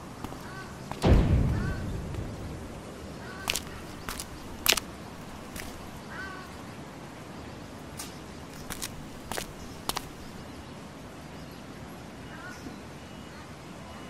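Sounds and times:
footsteps on gritty concrete: 0.0 - 1.2, 3.4 - 6.0, 8.5 - 10.4
bird chirp: 8.5 - 10.8.

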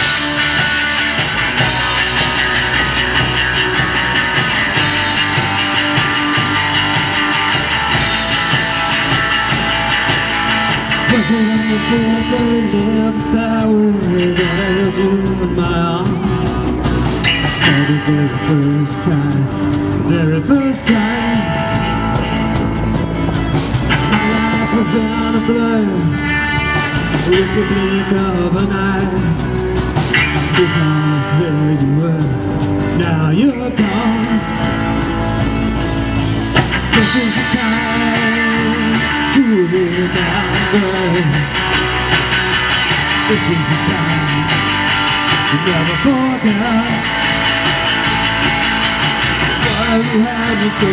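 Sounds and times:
drum kit: 0.0 - 50.9
electric bass: 0.0 - 50.9
electric guitars: 0.0 - 50.9
man singing: 10.1 - 22.4, 23.9 - 35.0, 36.7 - 42.1, 43.0 - 47.9, 48.8 - 50.9.

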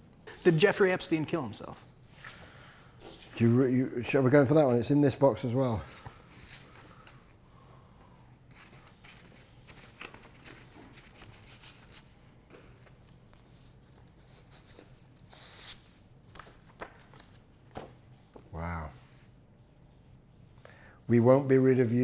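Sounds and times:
paper sheets rustling: 8.4 - 18.0.

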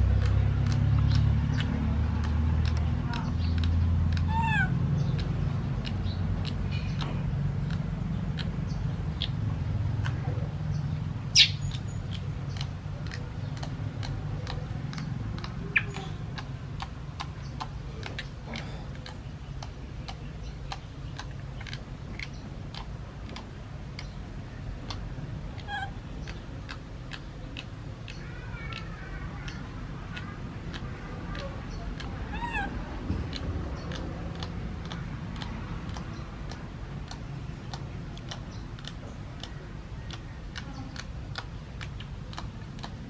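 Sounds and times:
regular ticking: 0.0 - 43.0
steady low hum: 0.0 - 43.0
baby monkey squeaking: 11.4 - 12.0, 14.9 - 16.1, 32.0 - 32.8.

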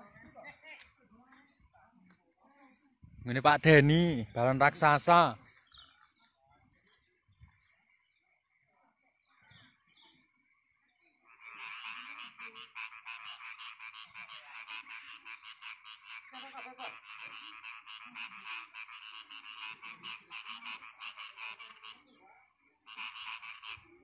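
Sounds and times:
frogs croaking: 10.3 - 24.0.

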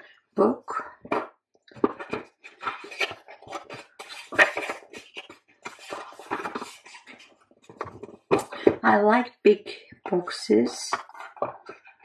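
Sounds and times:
pages flipping: 1.1 - 8.8, 10.9 - 12.0.

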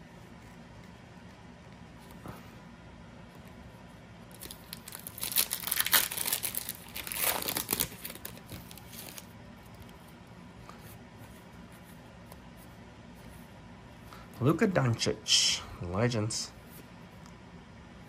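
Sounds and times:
foil wrapper tearing and crinkling: 4.3 - 9.2.

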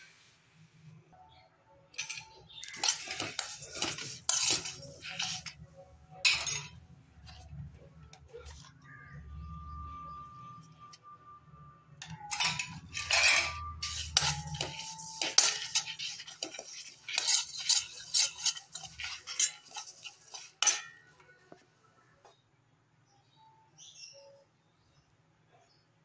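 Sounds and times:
metal spoon scraping seeds in pan: 2.0 - 7.5, 12.1 - 21.2.

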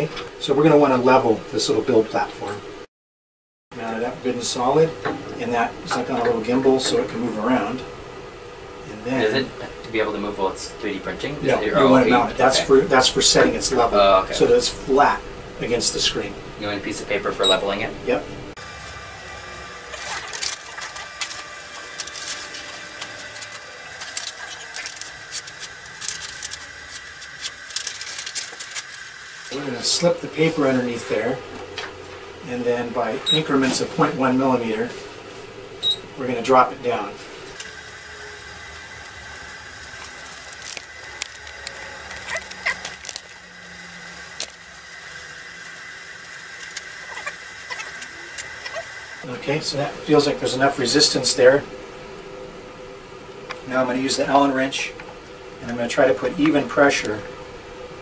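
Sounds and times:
faint high whine: 23.0 - 24.2, 37.7 - 43.0.

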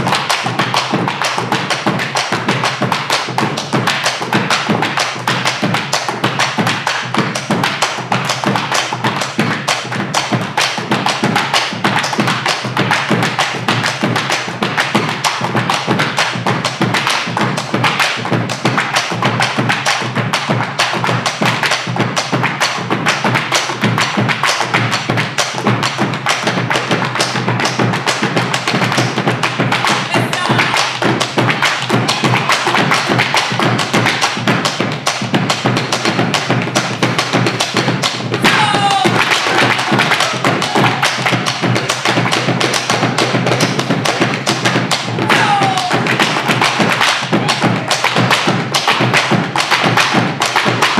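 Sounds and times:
drums: 0.0 - 50.9
boleadoras striking floor: 24.6 - 50.9.

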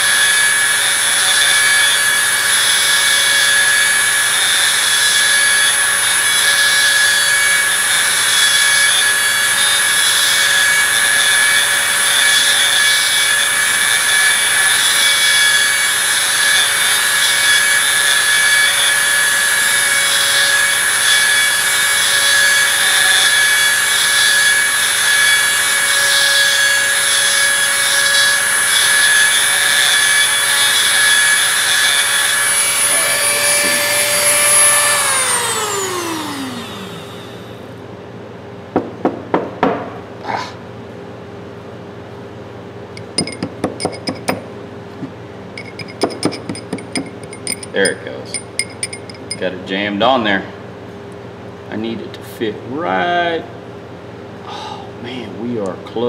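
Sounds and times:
abrasive stone grinding steel: 0.0 - 36.3, 43.0 - 49.7
rotary tool motor whine: 0.0 - 37.8, 45.0 - 49.5
rotary tool spinning down: 27.2 - 37.6, 45.6 - 49.4.

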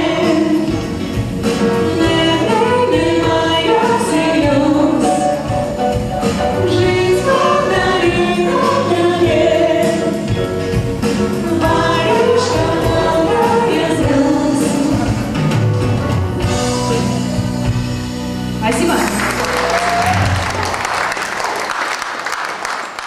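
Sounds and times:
women singing pop song: 0.0 - 1.0, 1.8 - 5.5, 6.6 - 10.4, 11.1 - 15.4
keyboard-led instrumental backing: 0.0 - 21.1.

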